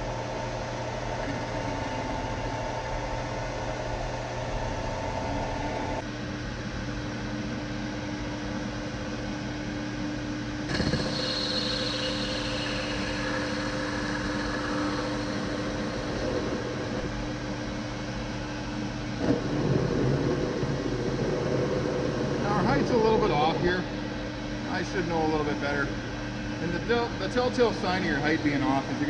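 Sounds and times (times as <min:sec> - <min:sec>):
high cutting whine: 0:10.7 - 0:24.5
lathe motor and gear hum: 0:10.7 - 0:25.0.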